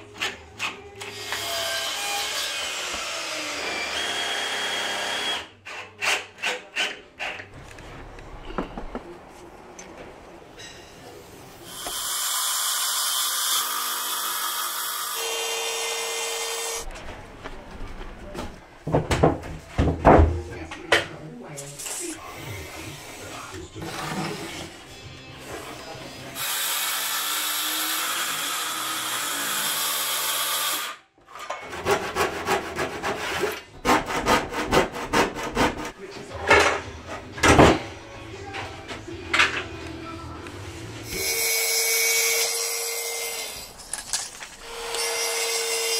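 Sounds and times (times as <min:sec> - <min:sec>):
circular saw cutting chipboard: 0:11.6 - 0:16.8
handsaw cutting: 0:31.7 - 0:36.0.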